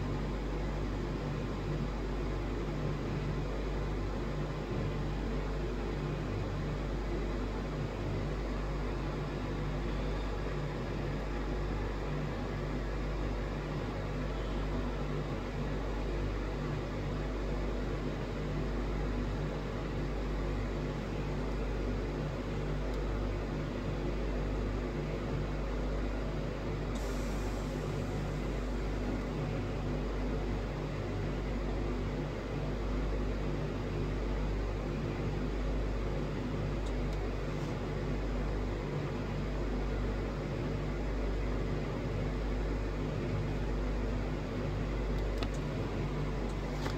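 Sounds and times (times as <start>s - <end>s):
low mechanical hum: 0.0s - 46.9s
hiss: 27.0s - 28.4s.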